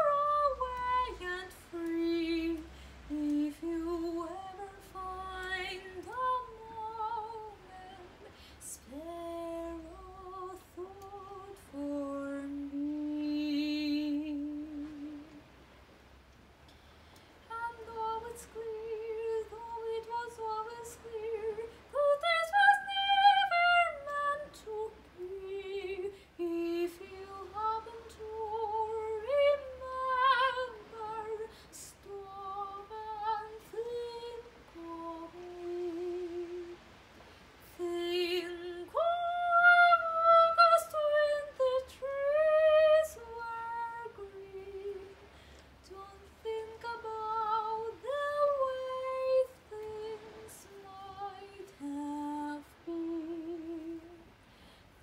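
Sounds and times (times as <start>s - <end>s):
woman singing unaccompanied: 0.0s - 15.6s, 17.4s - 54.4s.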